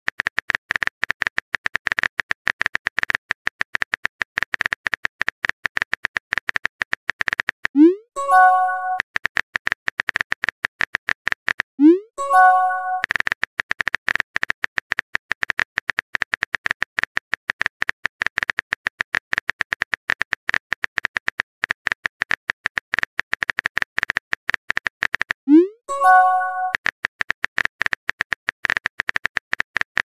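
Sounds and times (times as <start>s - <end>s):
bright chime: 8.2s - 9.0s, 12.2s - 13.0s, 25.9s - 26.7s.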